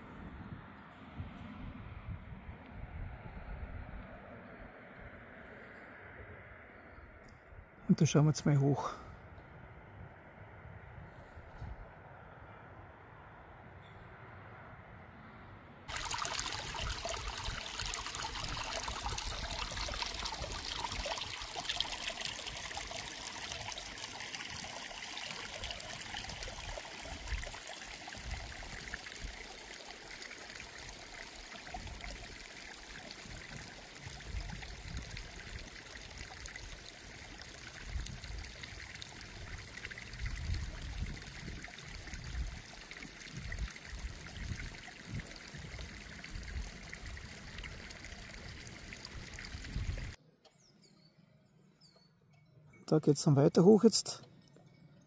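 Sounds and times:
brook trickling over stones: 15.9 - 50.2.

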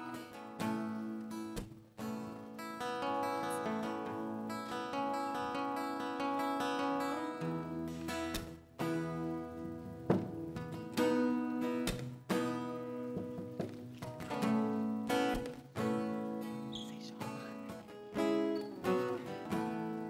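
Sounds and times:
guitars strumming slow chords: 0.0 - 20.0.

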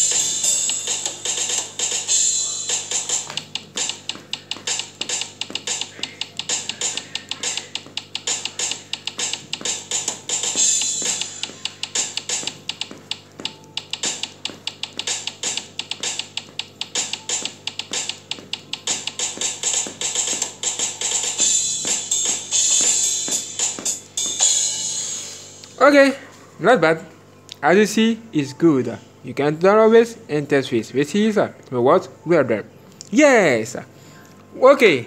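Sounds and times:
drum app hits from phone: 3.0 - 20.8.

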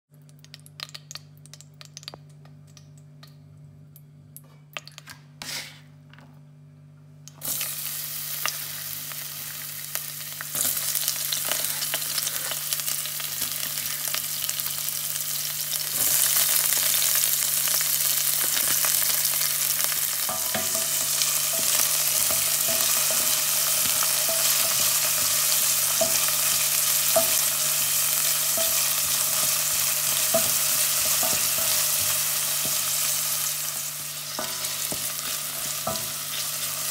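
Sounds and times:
low steady hum: 0.1 - 7.8
vegetables sizzling in hot oil: 7.3 - 36.9.

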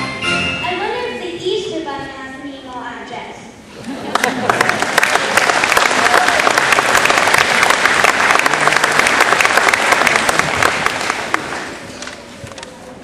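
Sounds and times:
audience applauding: 4.0 - 12.2.

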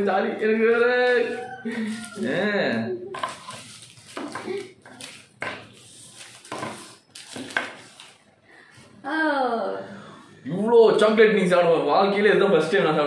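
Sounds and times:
plastic wrappers crinkling: 3.2 - 8.2.

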